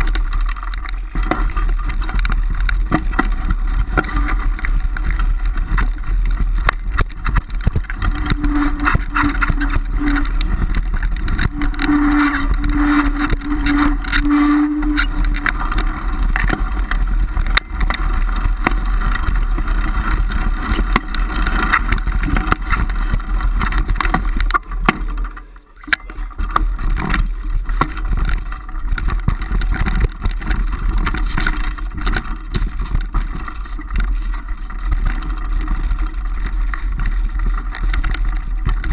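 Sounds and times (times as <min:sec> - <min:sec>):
wind buffeting microphone: 0:00.0 - 0:25.4
bike rattling over bumps: 0:00.0 - 0:38.9
low steady tone: 0:00.0 - 0:38.9.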